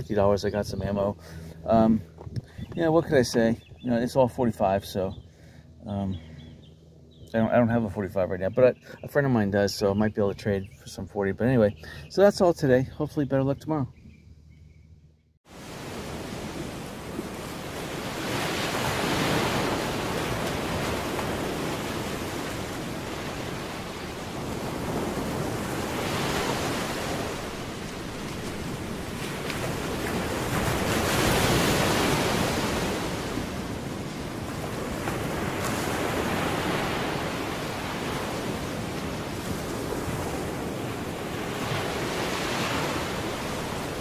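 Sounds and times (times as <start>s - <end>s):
ocean waves breaking: 15.5s - 44.0s.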